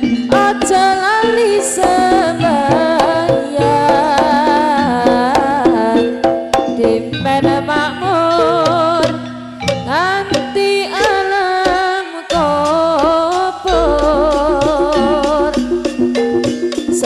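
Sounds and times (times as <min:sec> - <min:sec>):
drum strikes: 0:00.0 - 0:17.0
melodic lead instrument: 0:13.6 - 0:17.0.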